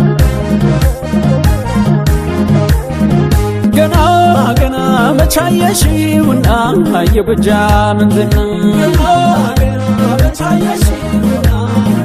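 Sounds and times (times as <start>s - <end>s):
music with kick-drum beat: 0.0s - 12.0s.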